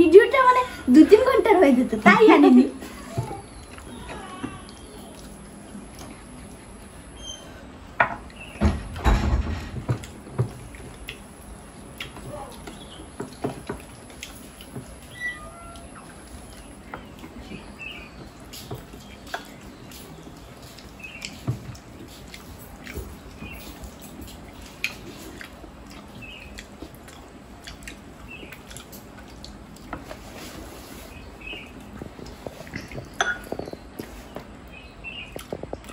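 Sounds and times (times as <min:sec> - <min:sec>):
people chewing and lip-smacking: 0:02.8 - 0:08.6, 0:09.8 - 0:35.9.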